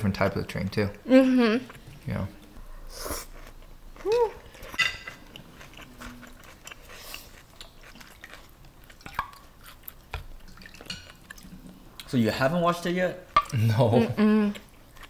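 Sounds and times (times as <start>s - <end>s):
quiet chewing: 1.6s - 12.2s, 13.4s - 15.0s.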